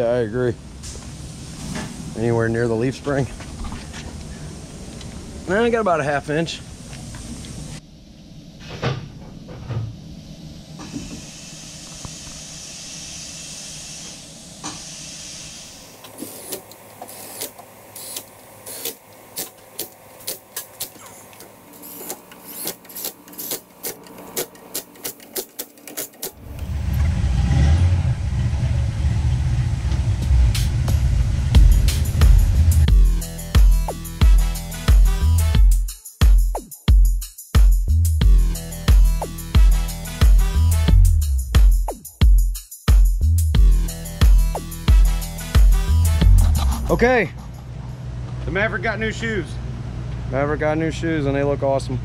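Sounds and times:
air hiss: 0.6s - 2.9s, 10.8s - 23.6s
wrench sharp clicks: 21.8s - 26.4s
loud low rumble: 26.4s - 33.4s, 46.0s - 49.9s.

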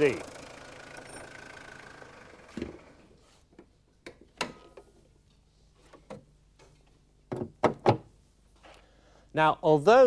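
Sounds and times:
engine idling: 0.0s - 3.1s
car bonnet clicks and knocks: 7.3s - 8.1s.

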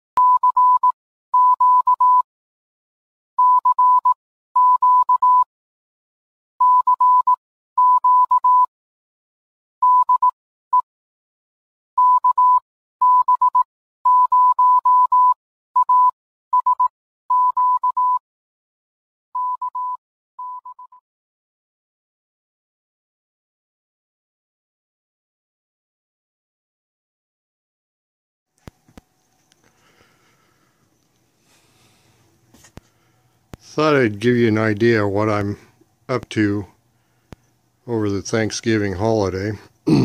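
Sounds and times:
morse code beep tone: 0.2s - 2.2s, 3.4s - 5.5s, 6.6s - 8.7s, 9.8s - 10.8s, 12.0s - 18.2s, 19.4s - 21.0s.

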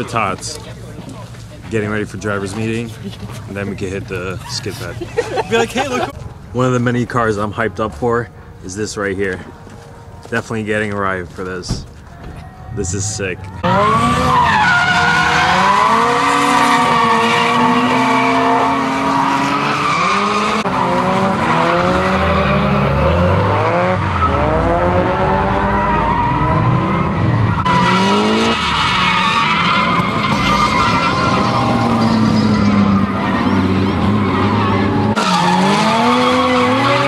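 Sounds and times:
car engines revving: 12.8s - 37.0s
tyre squeal: 25.6s - 36.7s.

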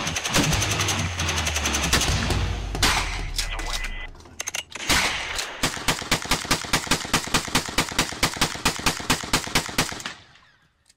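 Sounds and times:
rapid gunfire: 0.0s - 3.4s, 4.8s - 10.2s
loud gunshot: 1.9s - 3.4s.

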